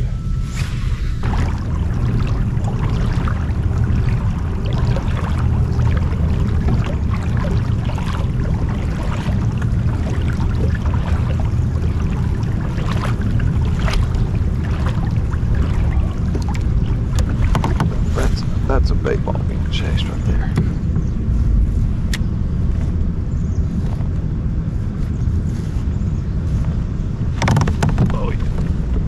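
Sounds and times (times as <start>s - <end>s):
water lapping against hull: 0.0s - 29.0s
wind rumble on microphone: 0.0s - 29.0s
small splashes: 1.2s - 21.4s.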